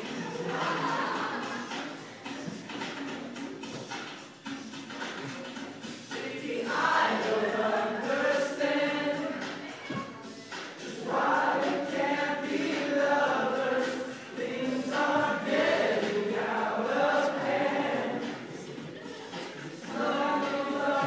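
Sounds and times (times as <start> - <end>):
young men singing together: 6.1 - 9.6, 10.8 - 21.0.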